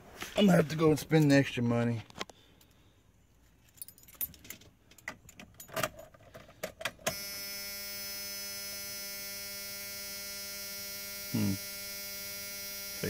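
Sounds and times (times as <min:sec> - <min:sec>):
keys rattling in ignition: 0:03.6 - 0:06.9
electric fuel pump hum: 0:07.0 - 0:13.0.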